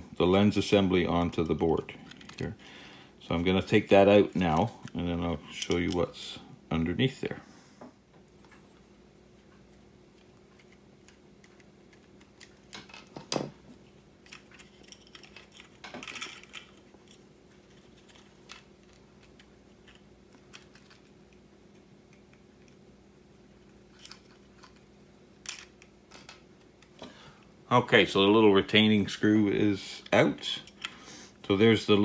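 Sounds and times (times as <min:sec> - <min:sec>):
faint steady hum: 0:00.0 - 0:32.0
screwdriver and plastic parts clicking: 0:01.3 - 0:02.6.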